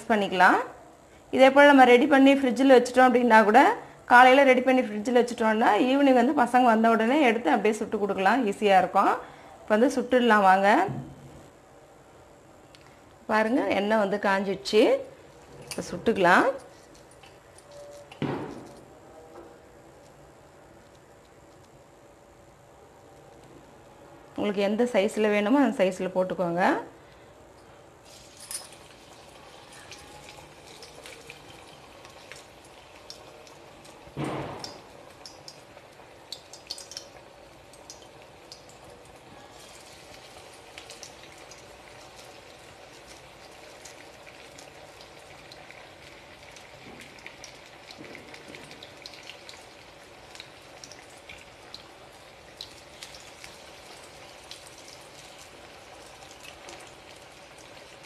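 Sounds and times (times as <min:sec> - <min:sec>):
food deep-frying in hot oil: 0:28.0 - 0:58.0.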